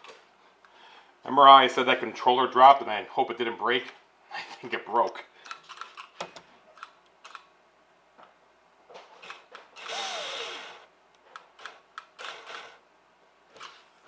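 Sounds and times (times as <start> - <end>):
small electric motor whirring: 9.8 - 10.8.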